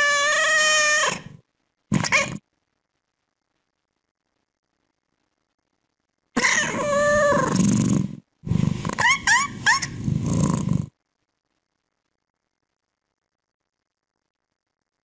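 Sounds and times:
cat chirping: 0:00.0 - 0:02.4, 0:06.4 - 0:10.8
cat meowing: 0:00.0 - 0:02.4, 0:06.4 - 0:07.6.

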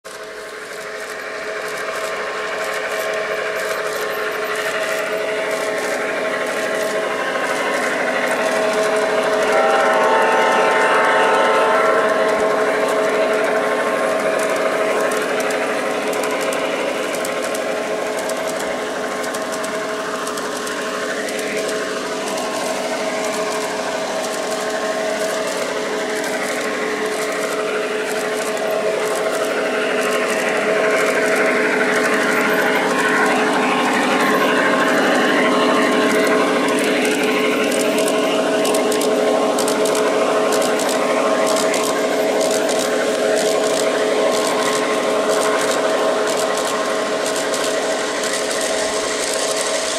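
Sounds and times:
wheels ticking on track: 0:00.0 - 0:49.9
model train motor whine: 0:00.1 - 0:49.9.

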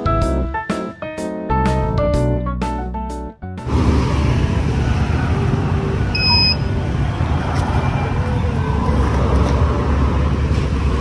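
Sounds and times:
road traffic rumble: 0:03.6 - 0:11.0
short electronic beep: 0:06.2 - 0:06.6.

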